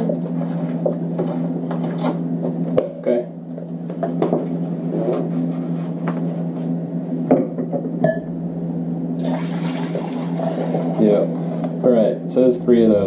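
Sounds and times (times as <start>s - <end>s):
steady low hum: 0.0s - 13.0s
glass cup knocking on countertop: 7.3s - 8.3s.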